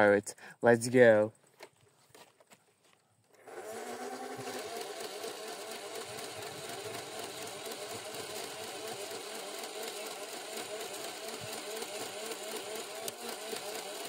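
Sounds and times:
motor revving with rising whine: 3.3 - 14.0
dart blaster rapid rattle: 3.4 - 14.0.

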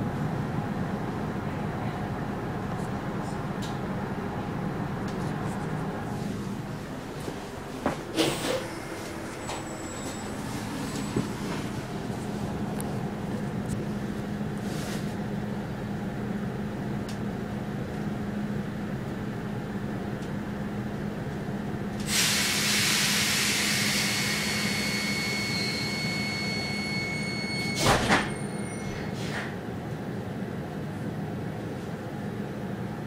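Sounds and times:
standing train hum: 0.0 - 33.0
sliding doors banging shut: 27.8 - 29.5.

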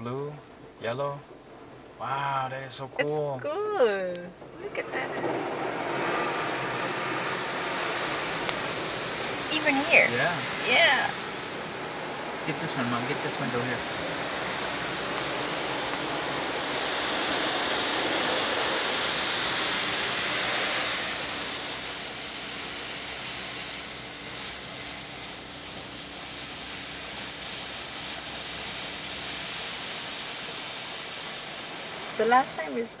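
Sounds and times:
faint steady hum: 0.0 - 5.3
car wash water spraying: 3.8 - 33.0.

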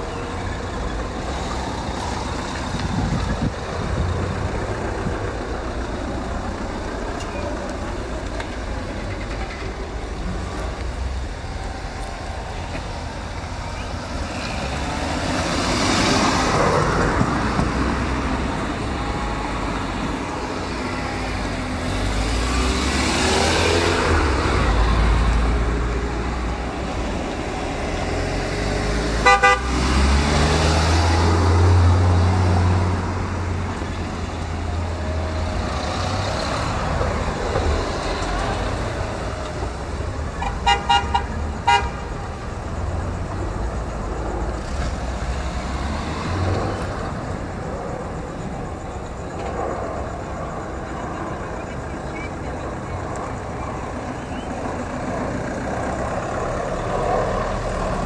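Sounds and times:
cars driving past: 0.0 - 58.0
car horn toot: 29.2 - 29.8, 40.4 - 42.1.

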